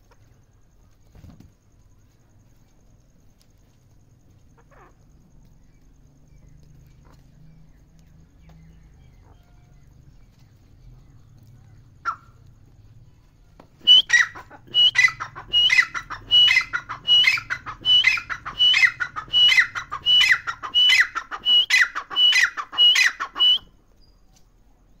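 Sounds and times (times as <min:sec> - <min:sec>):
francolin calling: 0:13.8 - 0:24.2.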